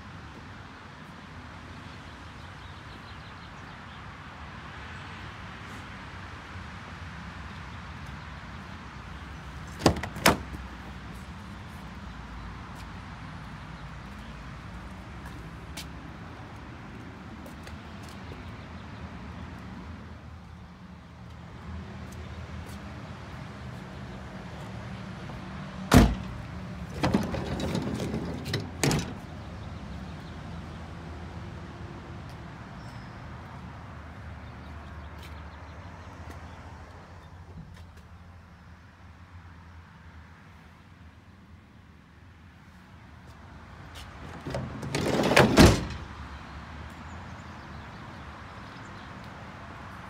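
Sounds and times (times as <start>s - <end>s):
road traffic rumble: 0.0s - 50.0s
van door clunking: 9.7s - 10.6s, 25.9s - 29.3s, 44.2s - 46.2s
door rattling and knocking: 9.8s - 10.6s, 25.9s - 29.2s, 44.3s - 46.1s.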